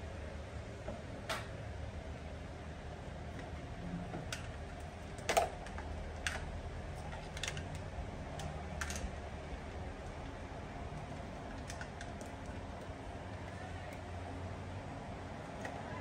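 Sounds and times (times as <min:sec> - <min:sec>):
electric cord being coiled: 0:03.2 - 0:16.0.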